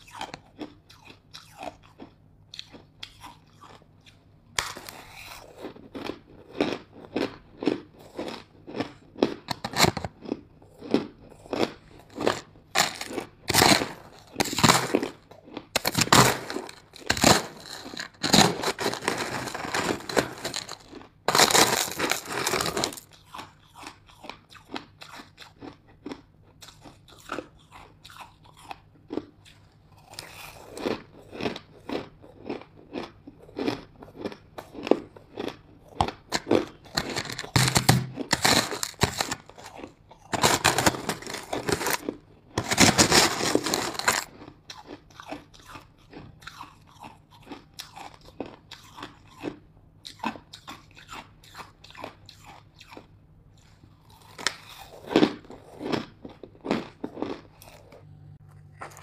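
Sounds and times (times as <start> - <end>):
crunching ice chunks: 8.8 - 10.4, 11.5 - 23.2, 34.8 - 44.9.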